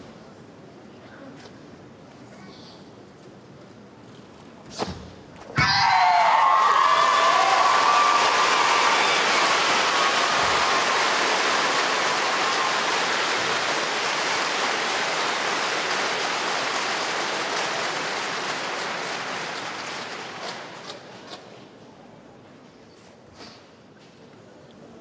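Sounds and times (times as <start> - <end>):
crowd cheering: 5.6 - 20.9
crowd applauding: 6.0 - 21.0.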